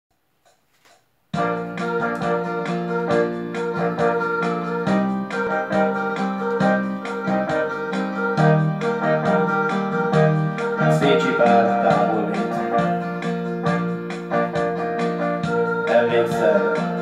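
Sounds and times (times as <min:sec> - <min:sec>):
electric piano chords over beat: 0:01.4 - 0:17.0.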